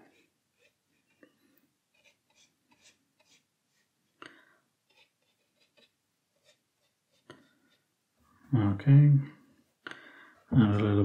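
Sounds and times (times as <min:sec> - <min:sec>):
paintbrush scratching on paper: 0:00.0 - 0:04.2, 0:04.8 - 0:08.0.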